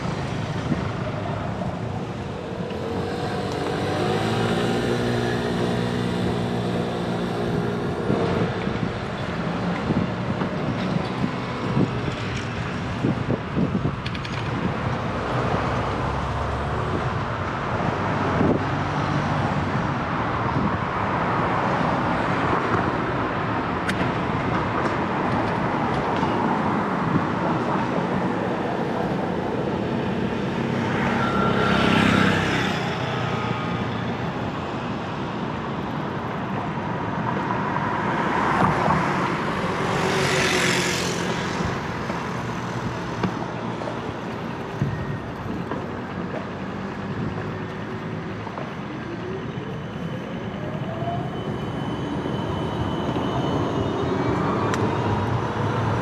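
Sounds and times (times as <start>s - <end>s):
city street traffic: 0.0s - 56.0s
vehicle passing: 2.6s - 8.5s.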